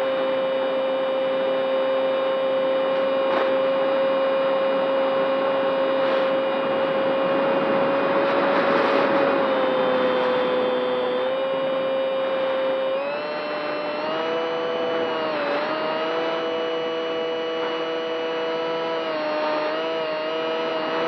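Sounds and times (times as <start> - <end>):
model airplane motor whine: 0.0 - 21.0.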